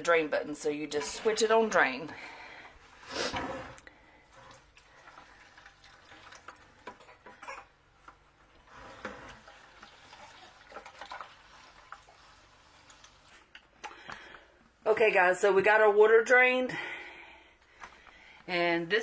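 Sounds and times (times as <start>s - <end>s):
water trickling into plastic bucket: 4.4s - 7.4s, 8.6s - 14.1s.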